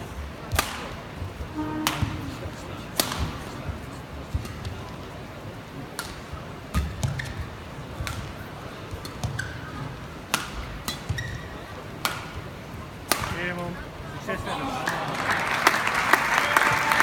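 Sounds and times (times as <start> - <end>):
murmur of indoor crowd: 0.0 - 17.0
racket hitting shuttlecock: 0.5 - 1.0, 1.8 - 2.3, 2.9 - 3.6, 5.9 - 13.6
shoes squeaking on court: 6.8 - 7.6, 8.9 - 10.0, 10.9 - 11.8.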